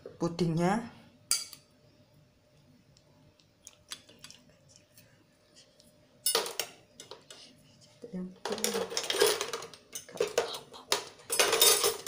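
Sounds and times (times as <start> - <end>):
metal spoon clinking on glass bowl: 1.3 - 1.6.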